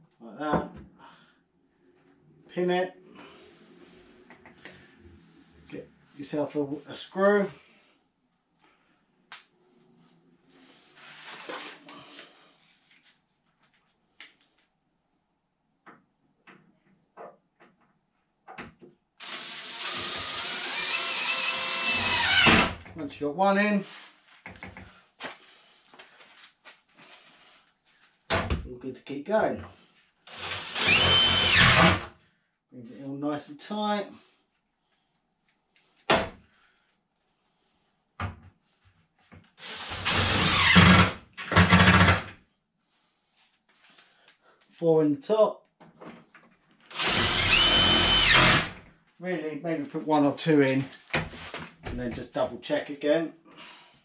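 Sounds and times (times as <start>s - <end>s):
cordless drill whining: 19.2s - 22.8s, 30.3s - 32.1s, 39.6s - 42.2s, 46.9s - 48.8s.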